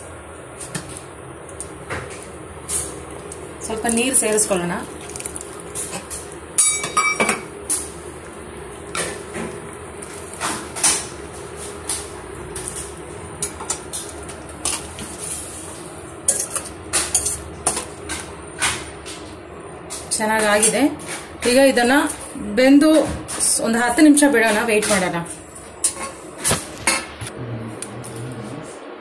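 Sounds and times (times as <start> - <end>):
spoon clinking and scraping pan: 5.8 - 7.8
metal pan ringing: 6.6 - 7.5.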